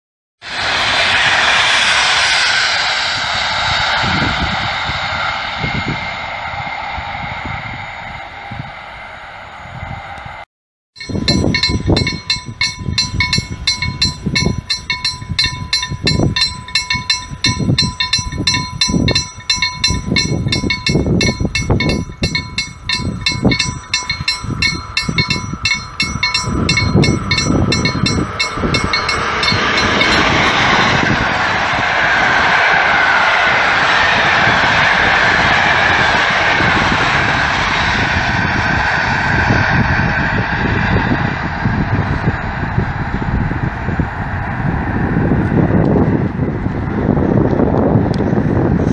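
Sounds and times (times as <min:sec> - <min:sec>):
train wheels rushing on rail: 0:00.4 - 0:10.4, 0:11.0 - 0:48.9
level-crossing warning bell ringing: 0:11.0 - 0:31.2
low irregular rumble: 0:11.0 - 0:34.8.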